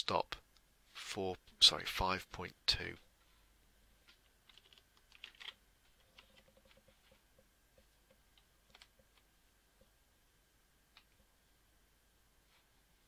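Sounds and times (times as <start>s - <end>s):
keyboard and mouse clicks: 4.0s - 7.1s, 8.1s - 9.3s.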